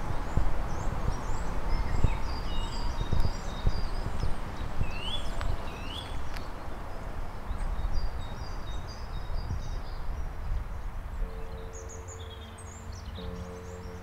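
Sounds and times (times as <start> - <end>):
small birds chirping: 0.2 - 14.0
steady low music tone: 10.1 - 14.0.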